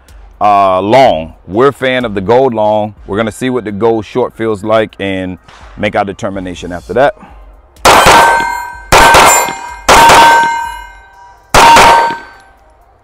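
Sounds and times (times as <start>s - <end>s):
pistol shots: 7.9s - 10.8s, 11.6s - 12.4s
steel target ringing: 7.9s - 12.4s.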